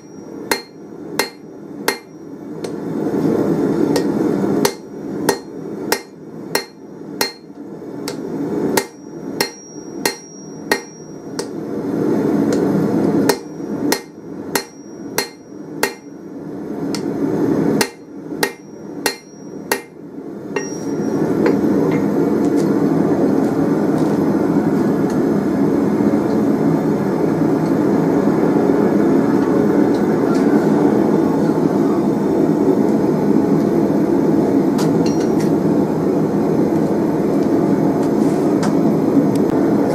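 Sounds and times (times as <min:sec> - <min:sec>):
hammer striking metal on anvil: 0:00.0 - 0:02.8, 0:03.9 - 0:08.2, 0:08.8 - 0:11.6, 0:13.3 - 0:16.2, 0:17.8 - 0:22.1, 0:35.0 - 0:35.5.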